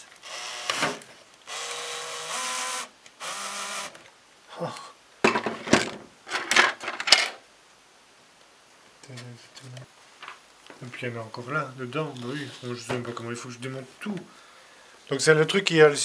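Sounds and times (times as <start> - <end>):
cordless drill whirring: 0.2 - 4.0
plastic parts knocking and rattling: 5.2 - 7.4.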